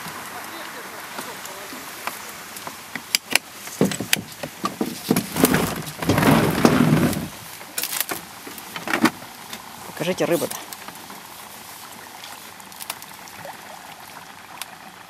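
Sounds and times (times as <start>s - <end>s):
rough scraping: 3.6s - 9.2s.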